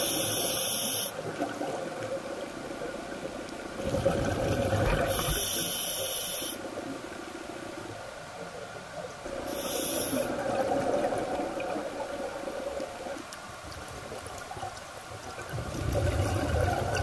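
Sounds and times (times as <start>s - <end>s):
underwater bubbling: 0.0s - 17.0s
diver breathing through regulator: 9.5s - 10.4s.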